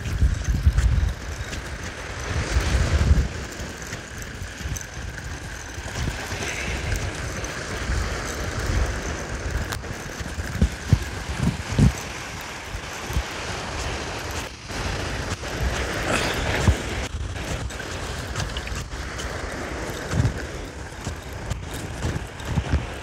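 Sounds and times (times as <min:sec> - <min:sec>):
surf on shore: 0:00.0 - 0:23.0
wind buffeting microphone: 0:00.0 - 0:23.0.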